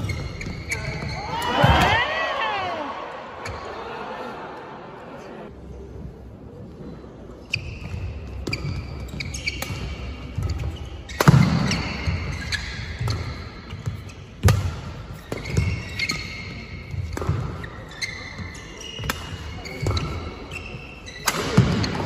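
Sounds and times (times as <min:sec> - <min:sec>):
sneakers squeaking on court: 0:00.0 - 0:02.0, 0:07.4 - 0:22.0.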